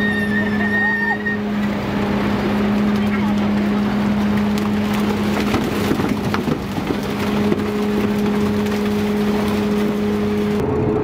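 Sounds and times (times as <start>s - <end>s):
boat machinery humming: 0.0s - 11.0s
fish splashing in a net: 4.2s - 10.5s.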